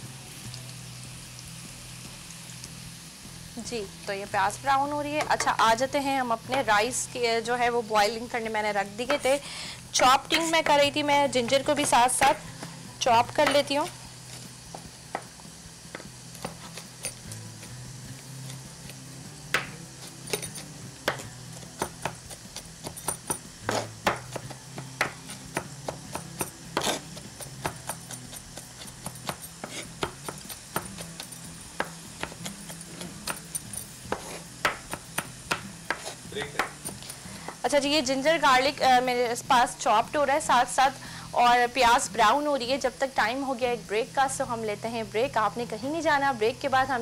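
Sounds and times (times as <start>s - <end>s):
knife chopping on wooden board: 19.5s - 19.8s, 21.0s - 31.2s, 31.8s - 33.5s, 34.1s - 37.6s.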